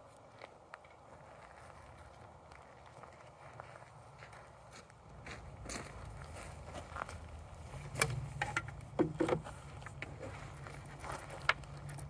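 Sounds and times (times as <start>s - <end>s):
wooden handling knocks and scuffs: 8.0s - 10.3s.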